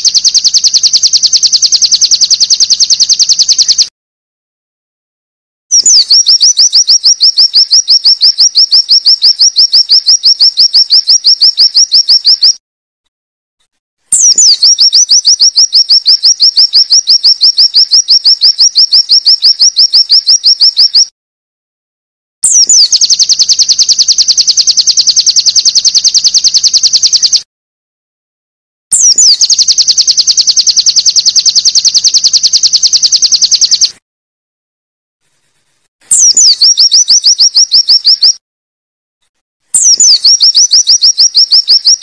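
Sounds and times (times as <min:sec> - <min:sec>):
bird song rapid high notes: 0:00.0 - 0:03.9, 0:05.7 - 0:12.6, 0:14.1 - 0:21.1, 0:22.4 - 0:27.5, 0:28.9 - 0:34.0, 0:36.1 - 0:38.4, 0:39.8 - 0:42.0.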